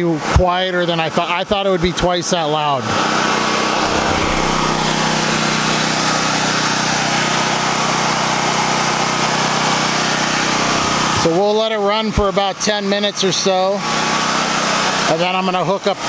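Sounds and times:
generator engine running: 3.8s - 5.7s.

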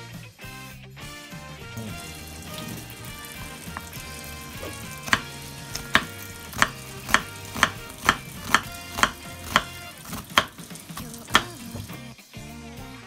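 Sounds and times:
knife chopping on cutting board: 3.4s - 12.0s.

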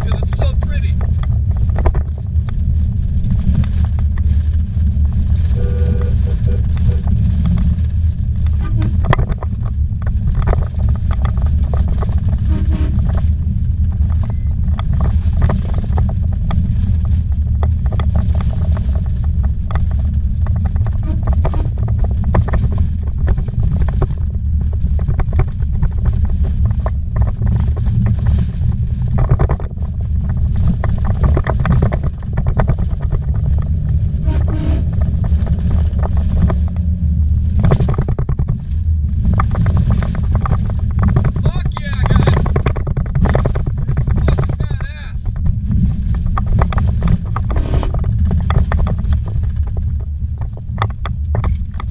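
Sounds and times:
tyres rumbling on dirt road: 0.0s - 51.9s
vehicle knocks and rattles: 0.0s - 51.9s.

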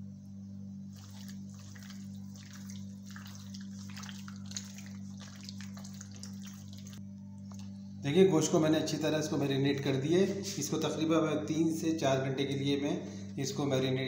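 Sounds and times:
low hum: 0.0s - 14.0s
hand squelching meat in marinade: 0.9s - 7.8s.

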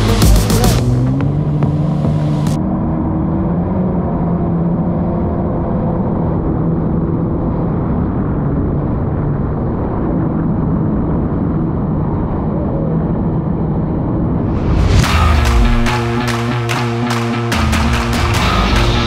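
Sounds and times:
jet ski engine running: 0.0s - 2.6s.

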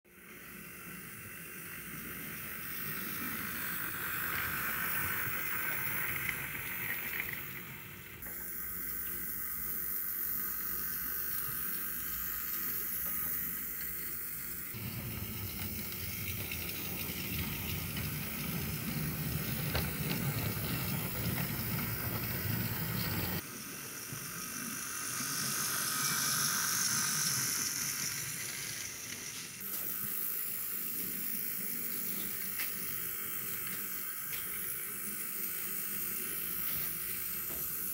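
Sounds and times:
model locomotive whirring on rails: 0.1s - 37.9s.

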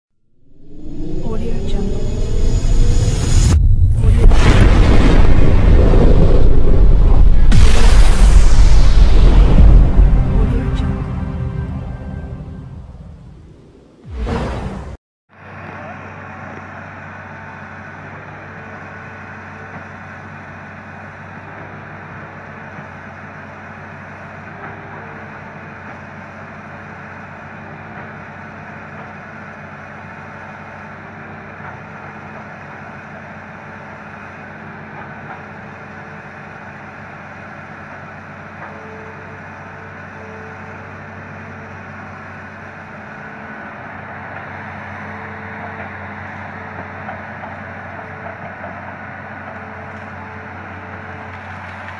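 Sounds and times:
high hydraulic whine: 0.4s - 14.6s
excavator diesel engine running: 0.7s - 13.0s, 15.3s - 51.9s.

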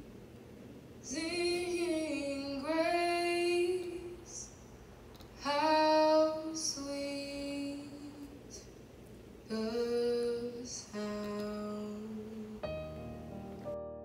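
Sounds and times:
woman singing: 1.0s - 4.6s, 5.4s - 8.7s, 9.5s - 12.8s.

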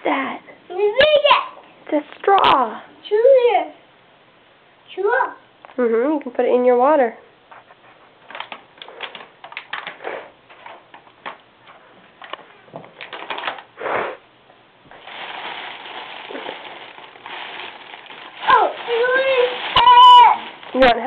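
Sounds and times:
cellophane wrap rustling: 8.2s - 11.4s, 12.9s - 13.8s, 14.9s - 21.0s
candy wrapper crackling: 8.3s - 10.7s, 13.0s - 13.8s, 14.9s - 21.0s.

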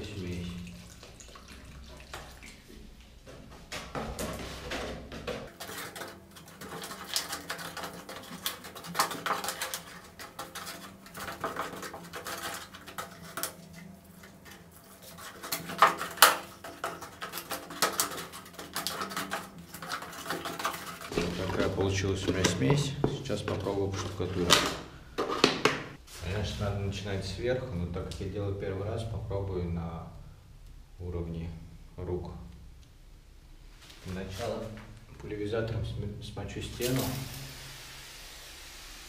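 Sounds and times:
trowel scraping plaster: 5.5s - 22.9s.

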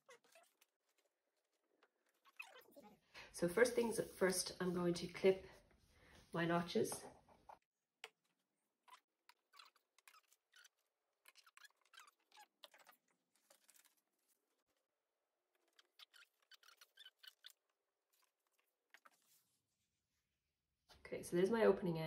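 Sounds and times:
fabric and paper rustling: 12.6s - 14.9s, 15.5s - 19.9s.

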